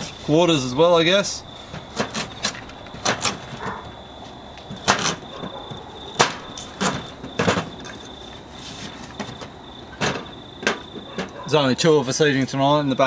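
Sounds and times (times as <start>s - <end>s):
knife chopping on plastic board: 2.0s - 3.8s.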